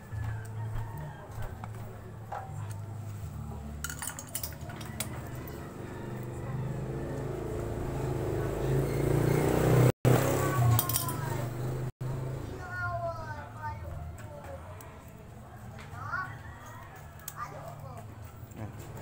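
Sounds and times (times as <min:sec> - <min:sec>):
metal tools clinking on metal: 0:03.7 - 0:05.8, 0:10.6 - 0:11.4.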